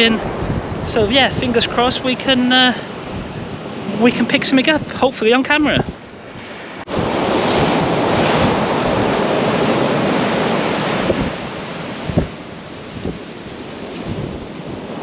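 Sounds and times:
wind buffeting microphone: 0:00.0 - 0:15.0
waves breaking on shingle beach: 0:05.4 - 0:15.0.

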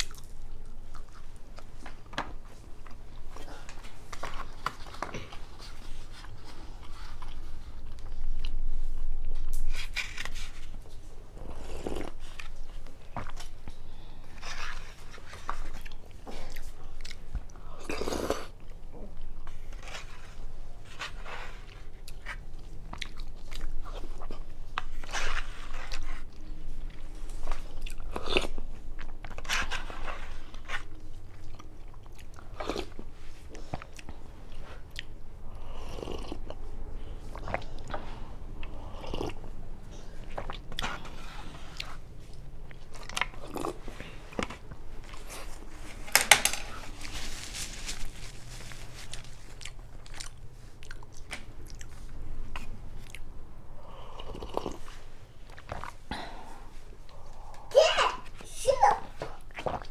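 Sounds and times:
chewing: 0:00.0 - 0:02.2, 0:11.0 - 0:20.4, 0:21.0 - 0:45.9, 0:47.1 - 0:56.0, 0:59.4 - 0:59.9.

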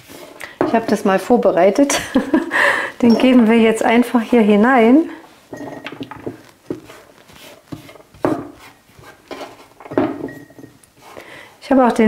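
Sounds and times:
fingers brushing cutting board: 0:06.2 - 0:09.8.

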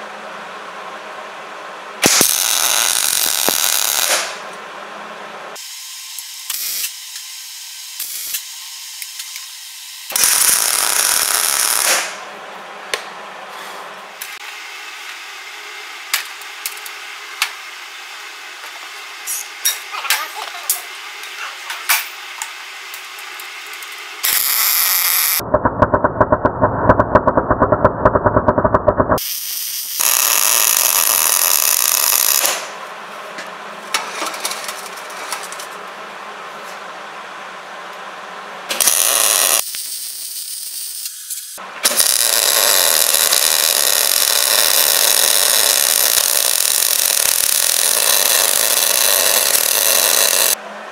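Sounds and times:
welder arc crackling: 0:02.0 - 0:04.4, 0:08.0 - 0:08.5, 0:22.4 - 0:25.4, 0:29.2 - 0:32.7, 0:38.7 - 0:50.6.

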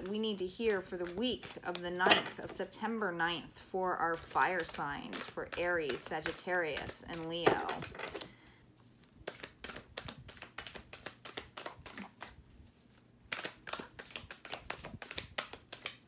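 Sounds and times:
cards being shuffled: 0:04.2 - 0:08.3, 0:08.9 - 0:16.0.

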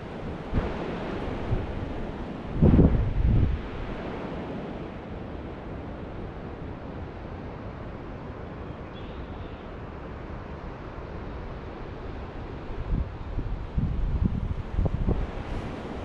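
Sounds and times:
wind on microphone: 0:00.0 - 0:06.6, 0:12.6 - 0:16.0
heavy low wind buffets: 0:00.0 - 0:16.0.

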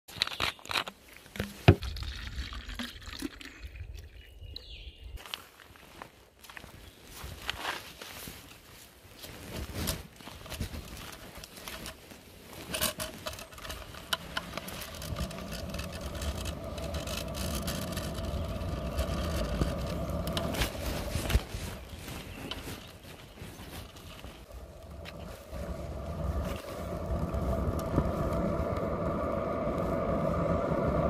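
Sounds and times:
scooter wheels rolling rumble: 0:09.7 - 0:31.0
scuffs and knocks on dry leaves: 0:14.2 - 0:28.3
faint hum: 0:24.5 - 0:31.0.

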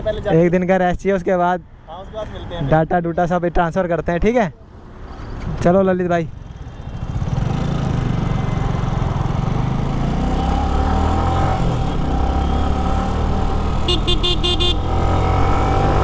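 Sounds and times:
motorcycle engine running: 0:13.0 - 0:15.1
horn short beeps: 0:13.8 - 0:14.9.

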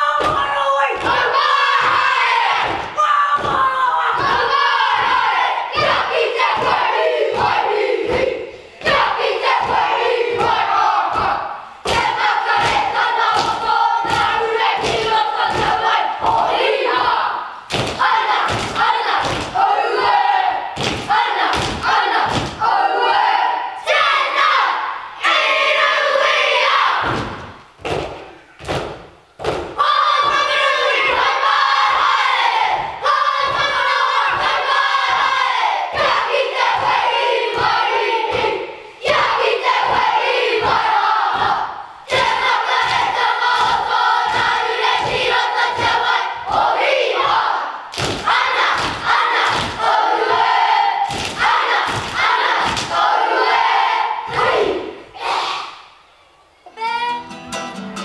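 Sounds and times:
children chanting together: 0:00.0 - 0:56.0
loud unison thumps: 0:27.0 - 0:31.3.

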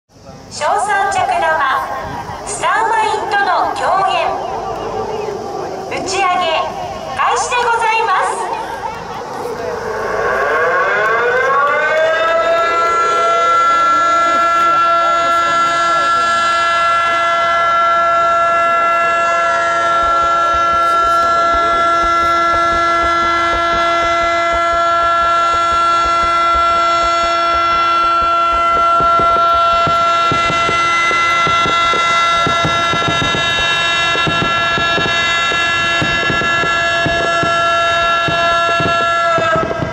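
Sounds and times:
fireworks shells bursting: 0:00.6 - 0:39.9
warning siren wailing: 0:00.6 - 0:39.9
steady tone: 0:00.9 - 0:36.8
fireworks mortars thumping: 0:17.4 - 0:39.9.

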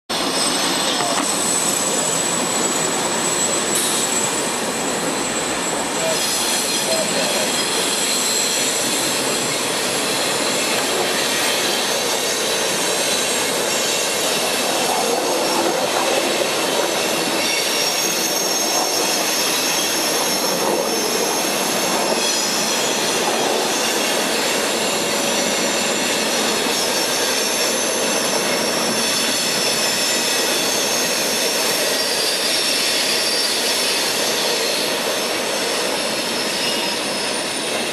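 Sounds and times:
freight train rolling on rails: 0:00.1 - 0:37.9
high-pitched wheel squeal: 0:00.2 - 0:37.9.

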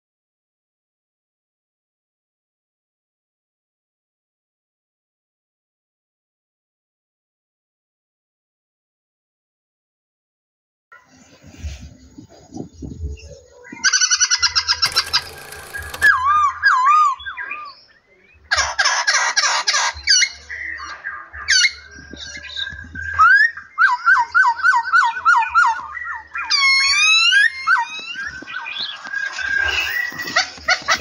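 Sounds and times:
songbirds singing and calling: 0:11.0 - 0:31.0.

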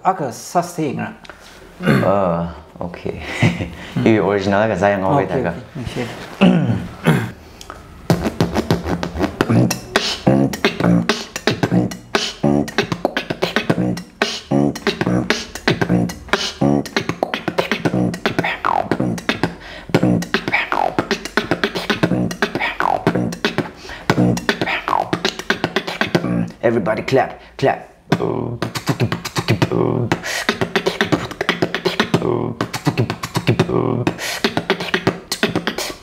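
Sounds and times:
beatboxing mouth clicks: 0:07.6 - 0:27.3, 0:28.0 - 0:36.0
hummed bass line: 0:08.1 - 0:26.5.

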